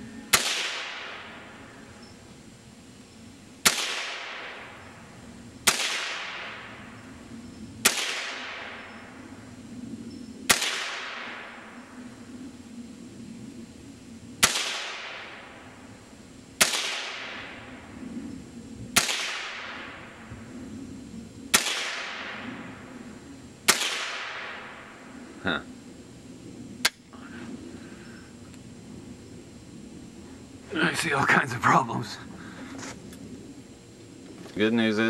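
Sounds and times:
rifle shots with echo: 0.3 - 1.4, 3.6 - 4.8, 5.6 - 6.8, 7.8 - 8.9, 10.5 - 11.7, 14.4 - 15.6, 16.6 - 17.6, 19.0 - 20.0, 21.5 - 22.4, 23.7 - 24.8.

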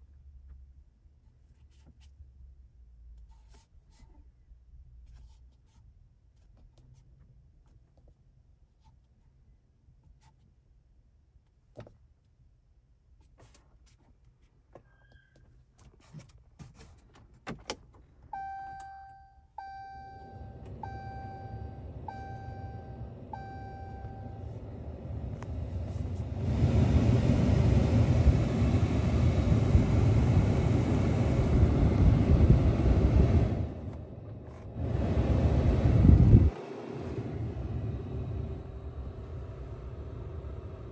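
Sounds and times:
dashboard warning chimes: 18.3 - 24.7
climate control blower air rush: 20.2 - 40.9.

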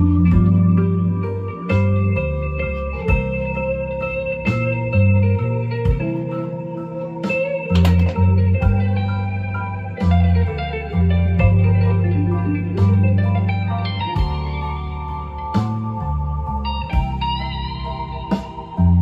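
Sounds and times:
plucked guitar music with beat: 0.0 - 19.0.

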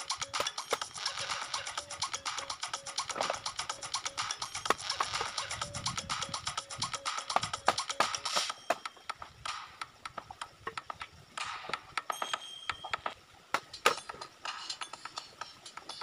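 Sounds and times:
bamboo and wood knocking: 4.5 - 5.6, 7.2 - 14.0.

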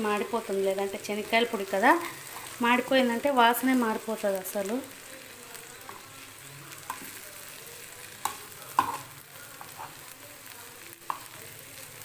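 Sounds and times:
low steady sizzle: 0.0 - 12.0
spatula scraping frying pan: 1.2 - 2.7, 8.3 - 10.0.

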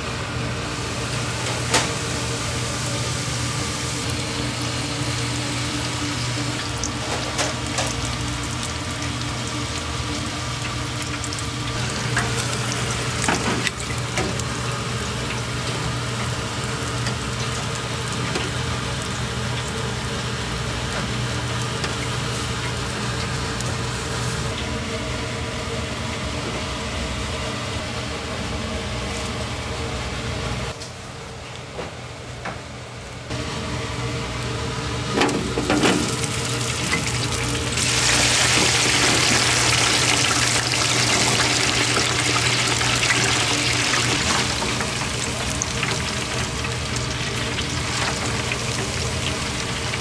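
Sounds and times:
kitchen equipment hum: 0.0 - 50.0
food sizzling in deep fryer: 0.4 - 24.6, 34.4 - 50.0.

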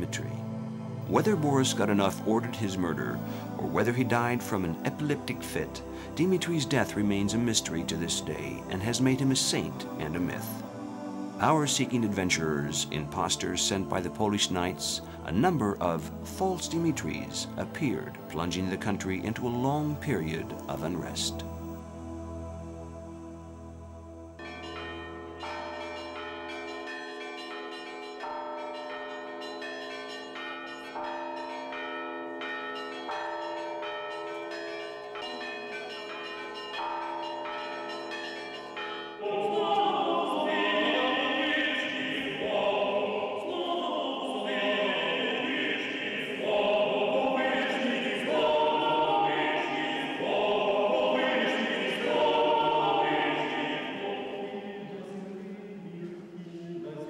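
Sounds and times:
vocal ensemble chanting a cappella: 0.0 - 24.0, 39.2 - 57.0
soft sustained background music: 0.0 - 57.0.

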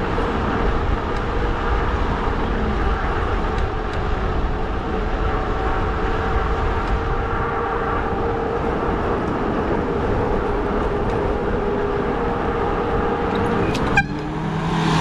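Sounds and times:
wide tyres rumbling: 0.0 - 15.0.

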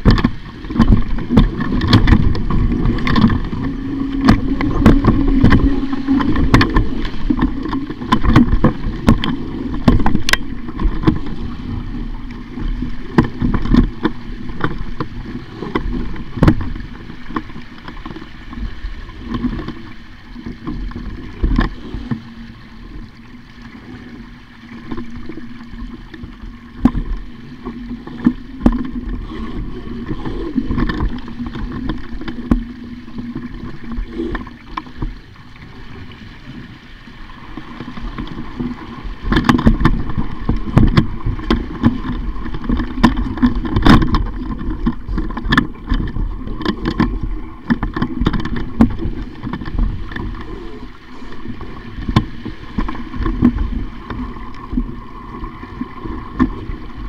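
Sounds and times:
wind buffeting microphone: 0.0 - 17.3
water splashing against hull: 0.0 - 57.0
steady low hum: 1.0 - 17.3.

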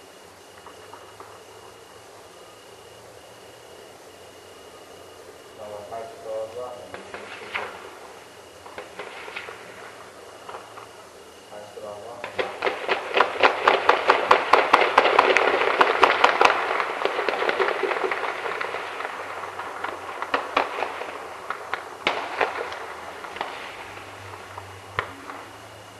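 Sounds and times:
heavy gunfire: 8.6 - 10.9, 12.1 - 25.4.

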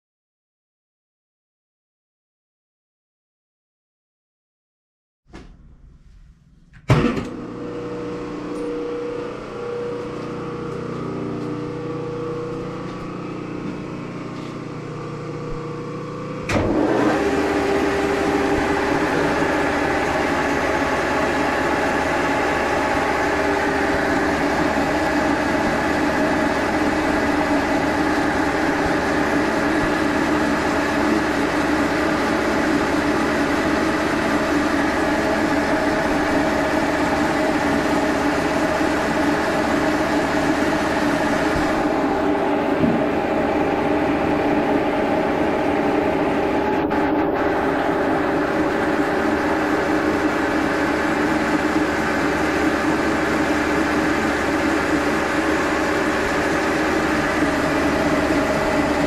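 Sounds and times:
phase converter humming: 5.4 - 59.0
milling machine motor whirring: 7.2 - 59.0.

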